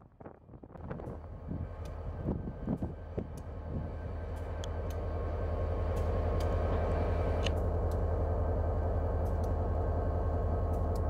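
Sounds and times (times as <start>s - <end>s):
diesel locomotive engine rumble: 0.0s - 11.0s.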